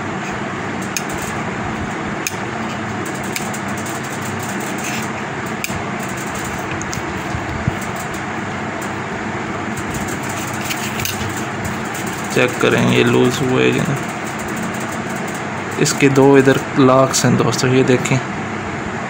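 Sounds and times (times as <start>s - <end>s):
steady hum and hiss: 0.0s - 19.0s
desoldering pump clicks: 0.8s - 9.0s, 9.7s - 16.6s.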